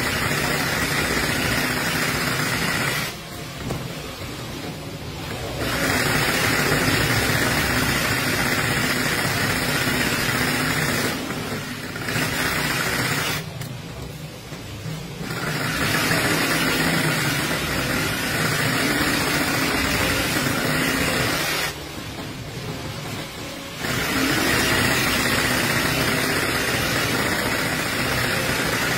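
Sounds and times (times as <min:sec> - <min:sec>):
industrial sewing machine running: 0:00.0 - 0:03.5, 0:04.3 - 0:28.9.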